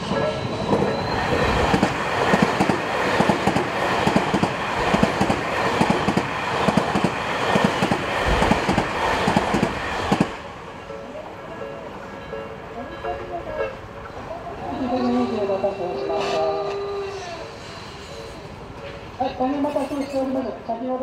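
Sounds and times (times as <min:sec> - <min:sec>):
train wheels clacking over rail joints: 0:00.8 - 0:10.4.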